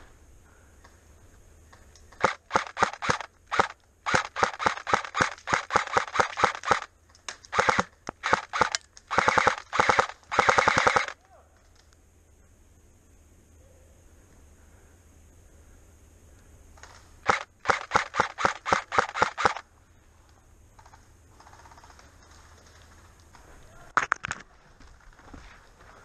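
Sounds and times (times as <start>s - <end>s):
airsoft rifle firing: 2.1s - 6.9s, 7.5s - 11.2s, 16.8s - 19.6s.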